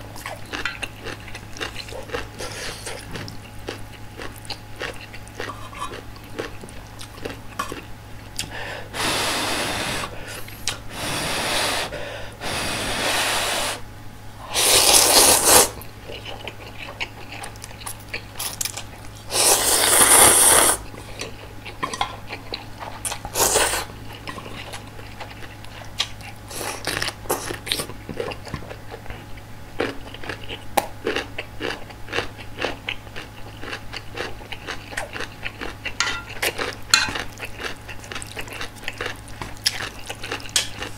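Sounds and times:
noodles slurped: 14.5 - 15.8, 19.3 - 20.9.

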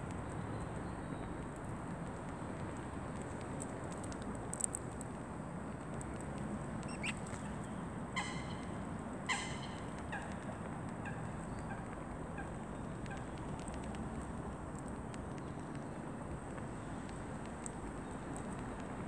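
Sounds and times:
pitched animal calls: 8.2 - 9.9.

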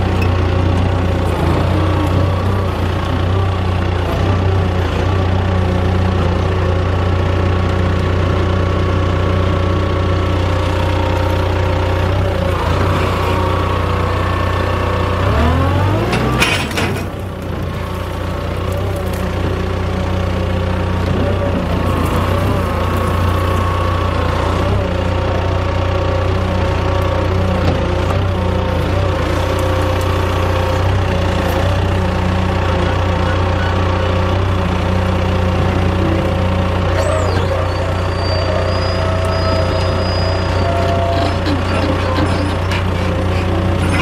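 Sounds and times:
forklift engine running and revving: 0.0 - 44.0.

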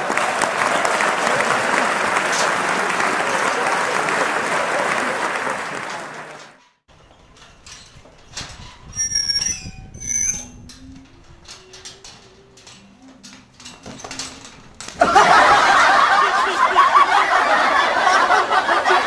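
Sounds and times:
crowd laughter: 0.0 - 6.6, 15.0 - 19.0
short high squeaks: 6.6 - 13.2.

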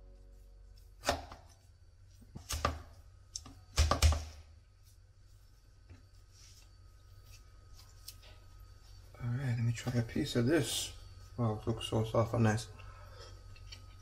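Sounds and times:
knife chopping on cutting board: 1.0 - 1.5.

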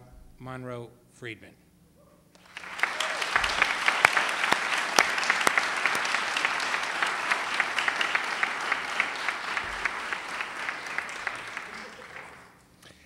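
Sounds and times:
audience applauding: 2.4 - 12.6.

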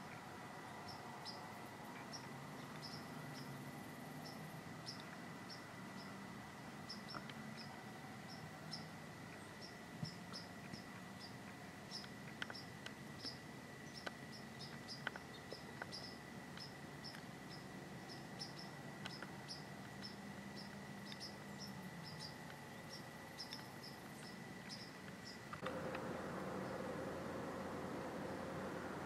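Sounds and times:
crickets chirping: 0.1 - 29.0
thin high whine: 21.3 - 29.0.

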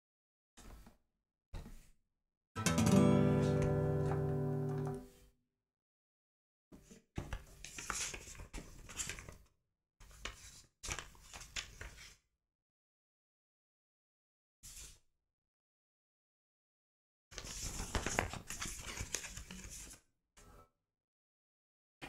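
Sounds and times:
guitar chord ringing: 2.6 - 5.0.

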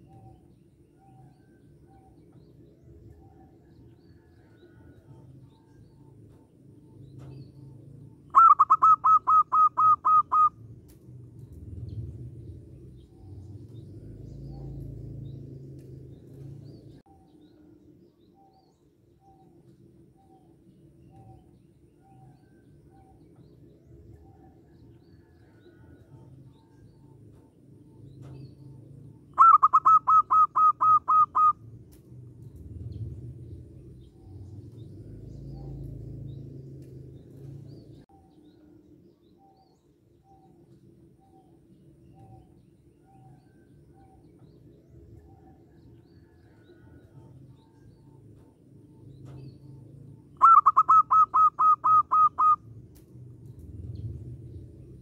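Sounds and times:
low steady hum: 0.0 - 55.0
bird song of quick pitched notes: 29.3 - 31.6, 50.3 - 52.6.

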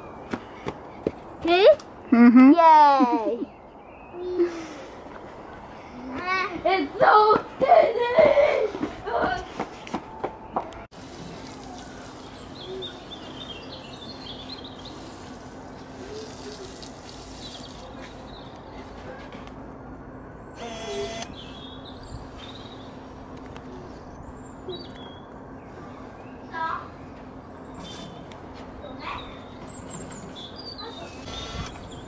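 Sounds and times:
faint constant hum: 0.0 - 32.0
birds chirping: 9.8 - 19.0, 20.2 - 32.0.

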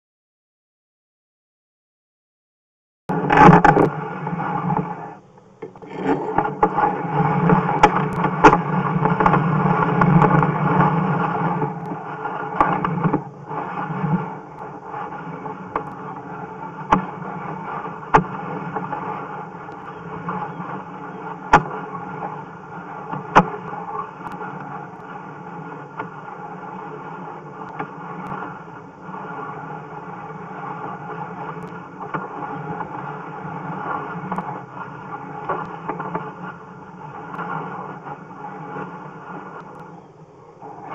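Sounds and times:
push rod scraping in pipe: 5.6 - 11.9.

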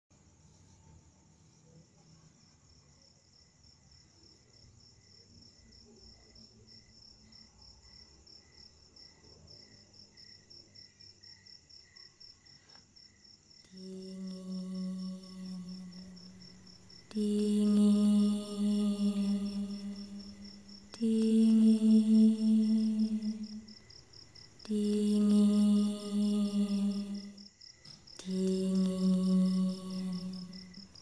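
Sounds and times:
crickets chirping: 0.2 - 31.0
person humming: 13.7 - 24.0, 24.6 - 31.0.

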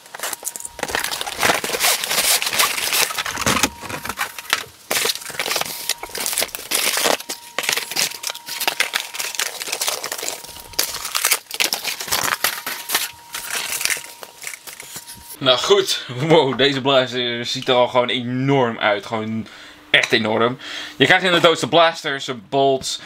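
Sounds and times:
cardboard scraping and rustling: 0.0 - 15.4.

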